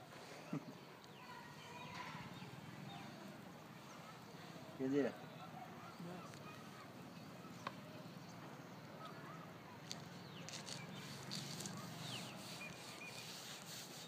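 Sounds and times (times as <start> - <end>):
short bird chirps: 10.2 - 13.4.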